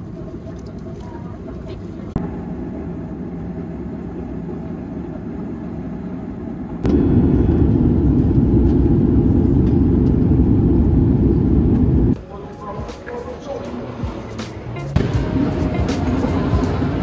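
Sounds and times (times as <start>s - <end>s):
jet airliner cabin rumble: 0.0s - 12.2s.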